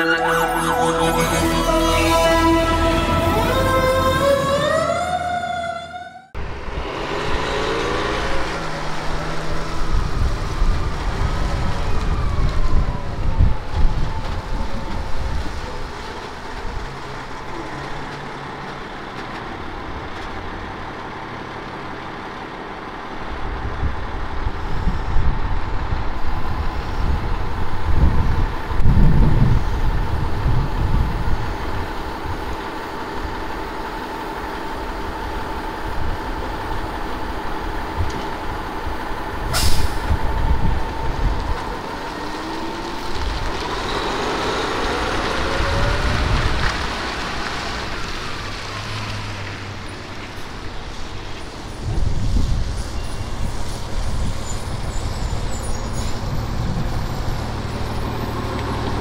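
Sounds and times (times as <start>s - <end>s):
steady whine: 0.0s - 6.3s
falling whine: 0.0s - 8.9s
diesel truck engine revving: 0.0s - 11.8s, 33.8s - 51.0s.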